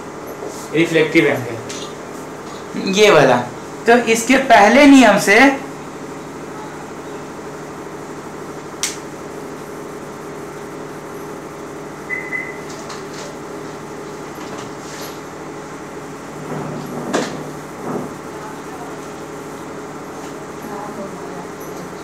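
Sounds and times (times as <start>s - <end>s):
low room hum: 0.0s - 22.0s
high beep: 12.1s - 12.7s.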